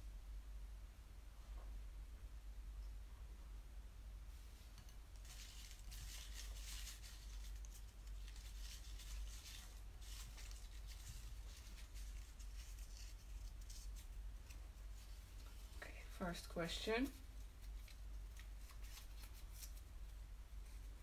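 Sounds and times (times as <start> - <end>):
low steady hum: 0.0 - 21.0
rustling and scraping: 4.3 - 16.3, 16.9 - 21.0.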